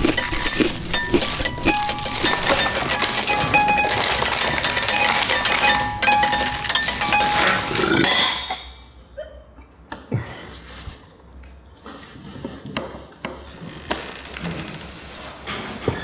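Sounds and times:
loud crinkly rustle: 0:00.0 - 0:05.7
cutlery and plates clinking: 0:00.0 - 0:09.0.

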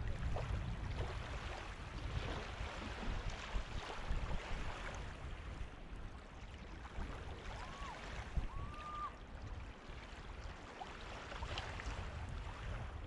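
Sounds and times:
gentle waves washing on sand: 0:00.0 - 0:13.0
thin whistle-like tone: 0:07.6 - 0:09.2.

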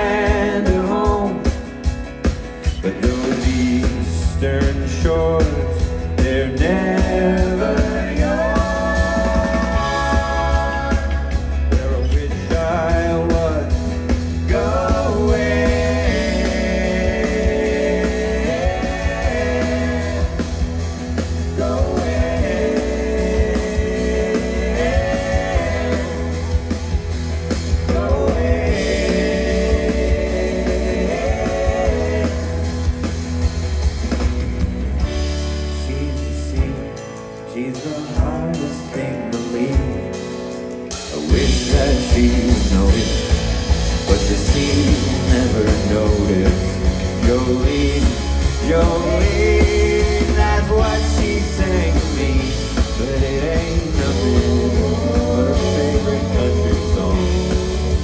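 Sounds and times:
person singing: 0:00.0 - 0:01.8, 0:02.5 - 0:33.4, 0:35.5 - 0:58.0
live pop band playing: 0:00.0 - 0:58.0.

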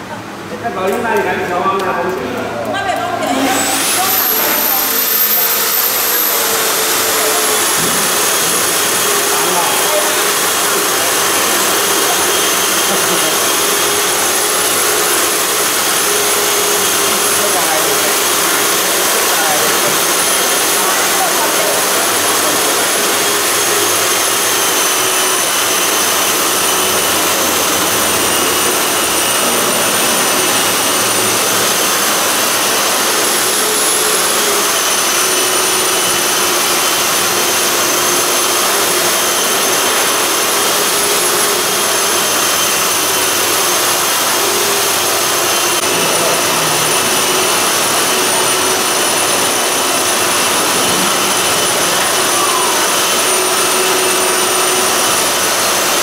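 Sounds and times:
machine rushing and whining: 0:02.4 - 0:56.0.

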